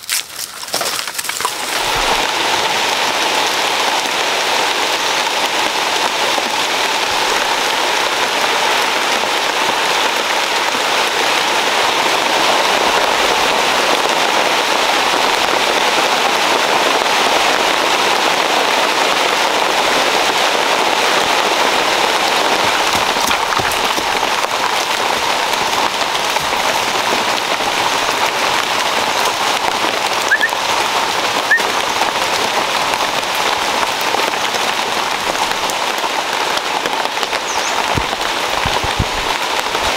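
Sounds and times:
rain on leaves: 0:00.0 - 0:39.9
faint chirps: 0:30.3 - 0:30.6.

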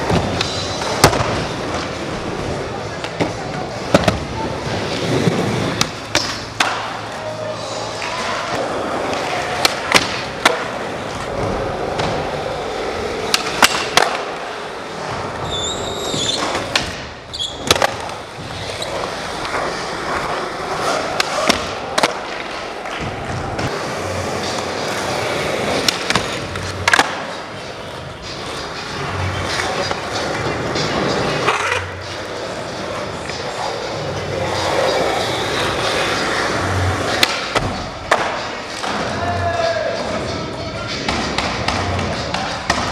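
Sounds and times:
skateboard wheels rolling on concrete: 0:00.0 - 0:42.9
skateboard clacking: 0:05.3 - 0:07.1, 0:07.9 - 0:14.7, 0:19.1 - 0:39.4.

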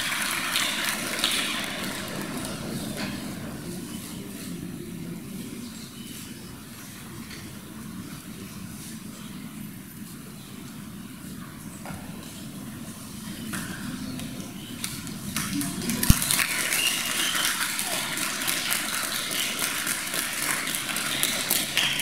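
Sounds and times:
audience applauding: 0:00.0 - 0:03.1, 0:15.4 - 0:22.0.

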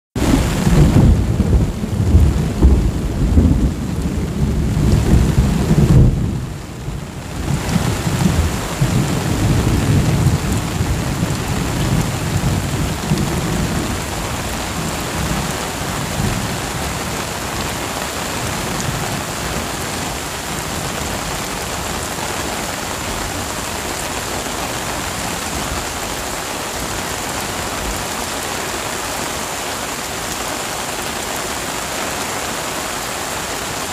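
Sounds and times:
thunder rumbling: 0:00.2 - 0:21.6
heavy rain: 0:00.2 - 0:33.9.

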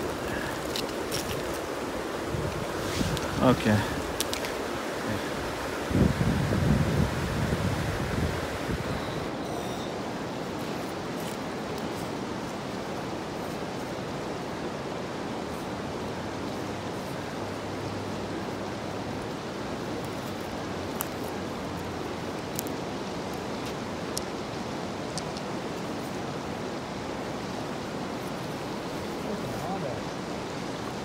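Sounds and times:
footsteps on stone: 0:00.0 - 0:01.7.

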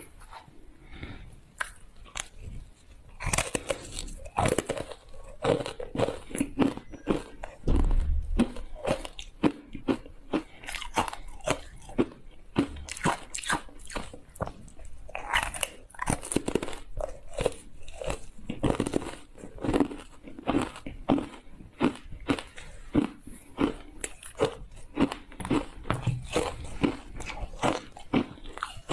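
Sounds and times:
ice crunching between teeth: 0:01.6 - 0:28.9.

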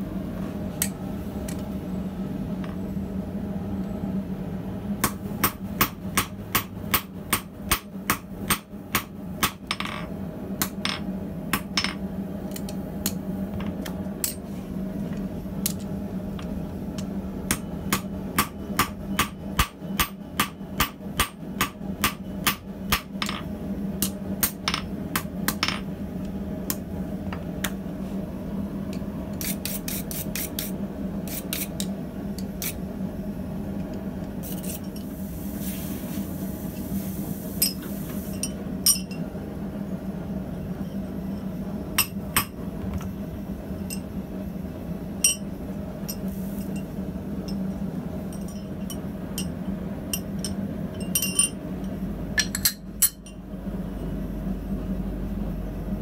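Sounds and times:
steady low hum: 0:00.0 - 0:56.0
hammer striking hot steel on anvil: 0:05.0 - 0:10.0, 0:10.6 - 0:12.0, 0:17.5 - 0:25.8, 0:37.6 - 0:39.2, 0:42.0 - 0:42.6, 0:45.2 - 0:45.5.

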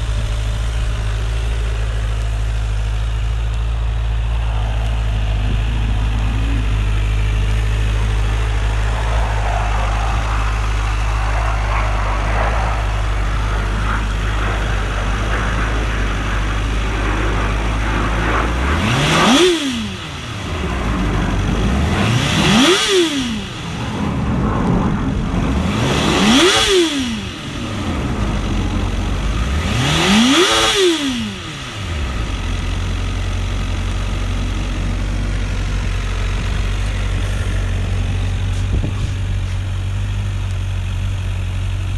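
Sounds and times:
motorcycle engine idling and revving: 0:00.0 - 0:41.9.

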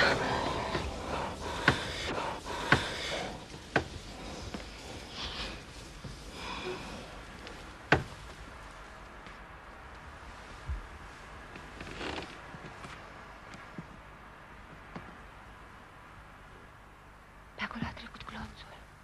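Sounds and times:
quiet breathing: 0:00.0 - 0:09.1
rustling: 0:00.0 - 0:13.8.

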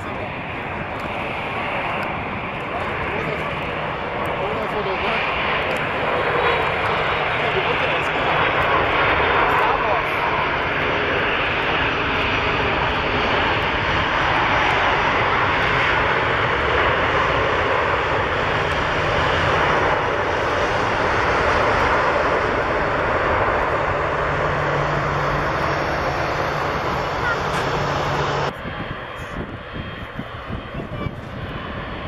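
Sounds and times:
jet engine rush: 0:00.0 - 0:32.0.

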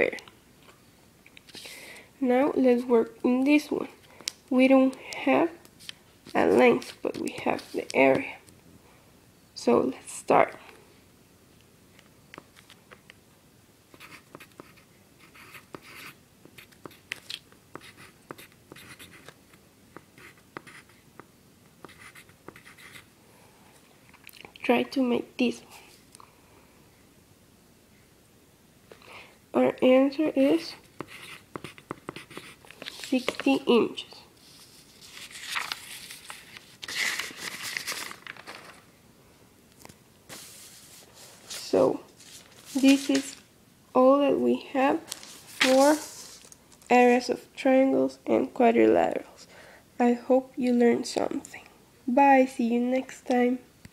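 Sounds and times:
paper pages rustling: 0:05.8 - 0:08.3, 0:32.6 - 0:33.6, 0:34.4 - 0:38.9, 0:39.8 - 0:43.4, 0:45.0 - 0:46.9
pen scratching on paper: 0:13.9 - 0:17.0, 0:17.7 - 0:19.3, 0:20.0 - 0:21.0, 0:21.8 - 0:23.1, 0:31.0 - 0:33.6.

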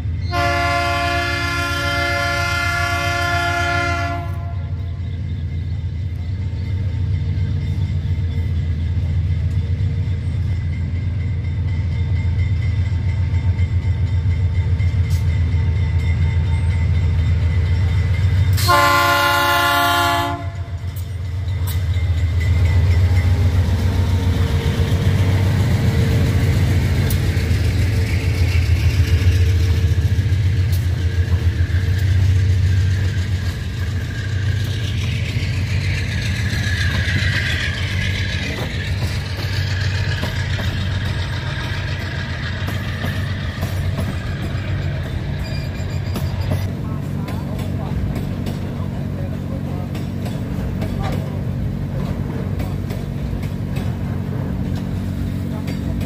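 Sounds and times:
diesel locomotive engines throbbing: 0:00.0 - 0:56.0
train horn blast: 0:00.3 - 0:04.9, 0:18.5 - 0:20.8.

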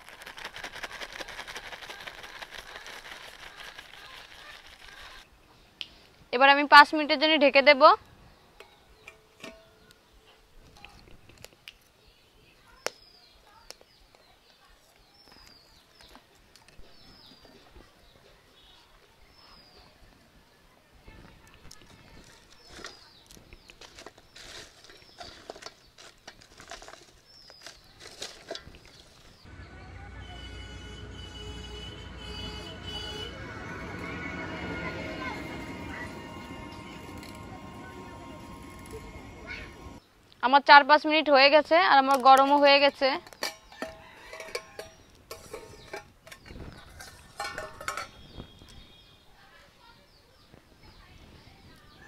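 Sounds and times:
salt grains rattling on metal: 0:00.0 - 0:05.2, 0:23.8 - 0:29.4, 0:42.2 - 0:48.3
firewood crackling: 0:00.0 - 0:06.3, 0:21.6 - 0:29.6, 0:32.0 - 0:40.4.

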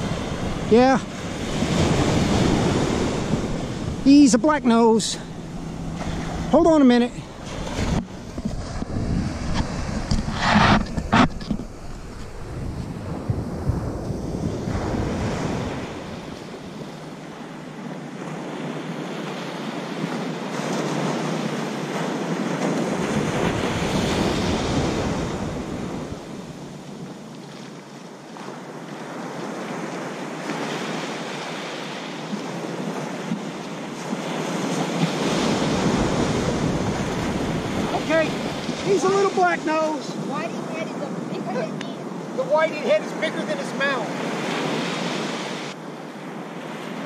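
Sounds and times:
wind on microphone: 0:00.0 - 0:17.2, 0:20.0 - 0:27.3, 0:32.3 - 0:42.4
ocean surf breaking: 0:00.0 - 0:47.0.

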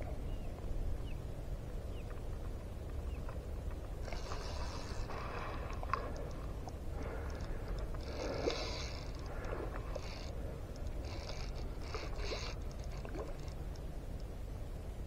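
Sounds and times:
low wind rumble on microphone: 0:00.0 - 0:15.0
fly reel cranking whir: 0:11.0 - 0:13.5.

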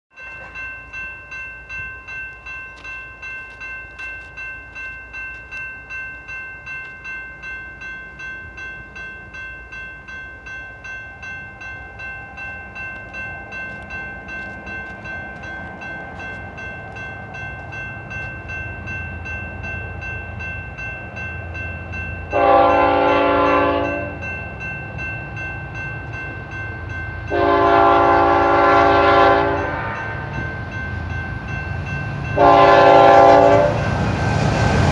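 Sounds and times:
crossing bell ringing: 0:00.1 - 0:34.9
freight train rumble: 0:00.2 - 0:34.9
locomotive air horn blasts: 0:22.3 - 0:24.1, 0:27.3 - 0:30.2, 0:32.4 - 0:33.8.

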